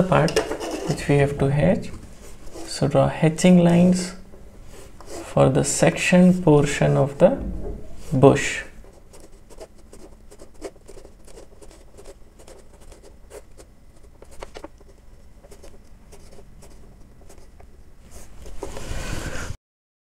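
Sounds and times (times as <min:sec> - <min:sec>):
chalk scratching on chalkboard: 0:00.3 - 0:01.0, 0:02.2 - 0:02.8, 0:04.0 - 0:05.4, 0:08.9 - 0:14.7, 0:15.4 - 0:18.8.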